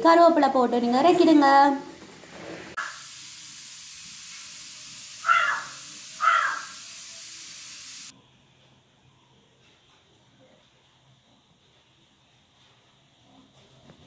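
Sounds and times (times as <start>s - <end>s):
steady hiss: 2.0s - 8.2s
loud animal calls: 2.8s - 3.0s, 5.2s - 6.9s.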